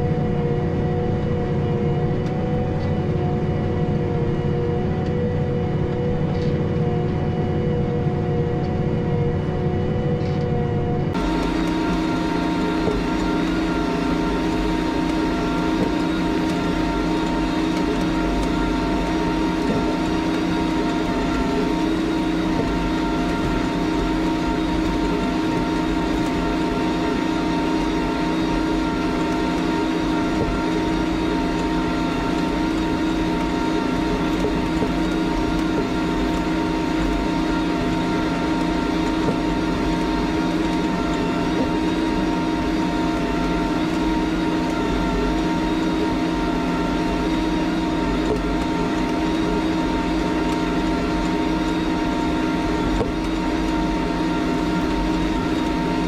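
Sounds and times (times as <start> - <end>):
steady whine: 0.0 - 56.0.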